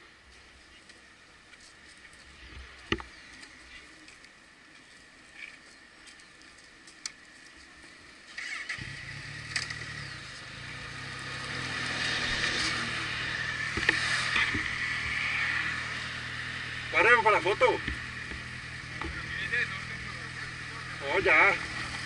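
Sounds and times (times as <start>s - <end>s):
motorcycle engine running: 8.3s - 22.0s.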